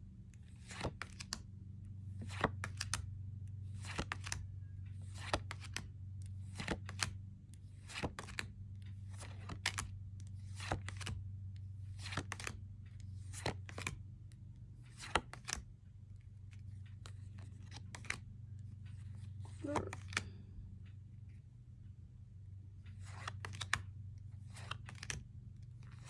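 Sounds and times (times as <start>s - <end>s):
steady low hum: 0.0s - 26.0s
cards flipping with swish: 2.2s - 3.0s, 3.7s - 4.4s, 6.4s - 7.1s, 7.8s - 8.5s, 9.1s - 11.2s, 11.9s - 12.6s, 13.2s - 14.0s, 14.9s - 15.6s, 16.5s - 18.2s, 19.0s - 20.3s, 23.0s - 25.2s.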